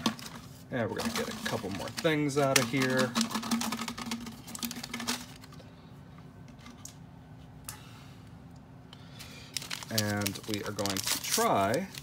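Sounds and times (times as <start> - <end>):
plastic packaging crinkling: 0.0 - 5.6, 9.5 - 12.0.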